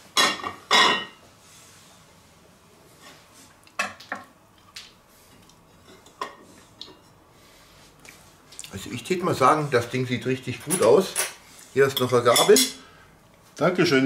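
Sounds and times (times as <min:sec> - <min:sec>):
metal server clinking on plates: 0:10.6 - 0:12.8.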